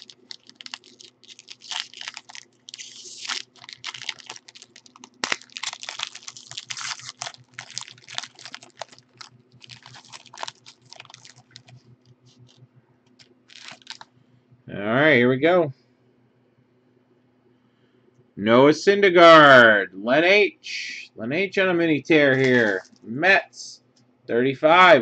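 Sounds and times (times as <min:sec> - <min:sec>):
foil wrapper crinkling and tearing: 0:00.0 - 0:14.1, 0:22.3 - 0:23.0.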